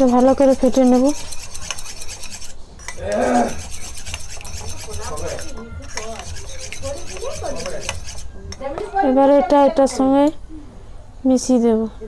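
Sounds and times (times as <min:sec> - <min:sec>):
spoon beating eggs in metal bowl: 0:00.0 - 0:08.6.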